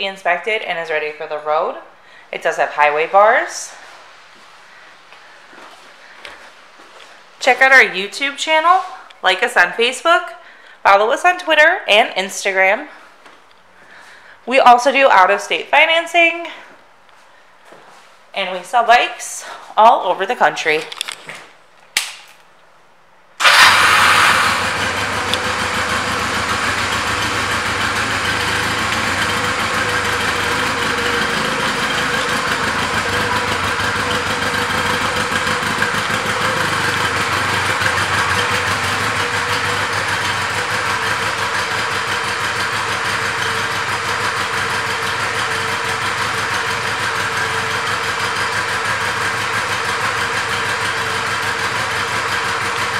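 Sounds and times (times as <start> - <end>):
motorcycle engine starting and idling: 23.4 - 52.9.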